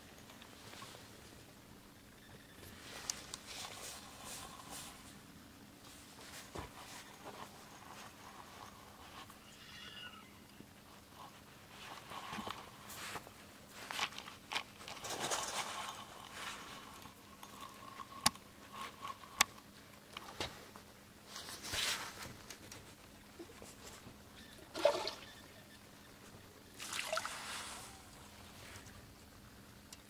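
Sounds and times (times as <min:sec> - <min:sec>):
water lapping at a dock: 0:26.7 - 0:29.1.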